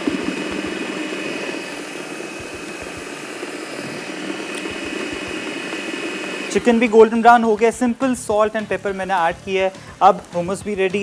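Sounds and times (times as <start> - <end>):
food processor motor whirring: 0.0 - 7.9.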